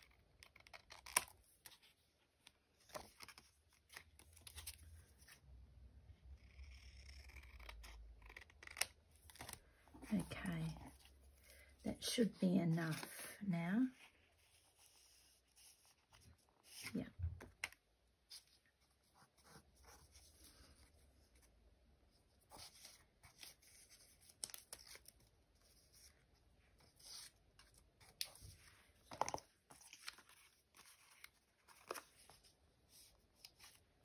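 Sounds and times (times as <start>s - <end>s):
paper rustling: 22.5s - 34.0s.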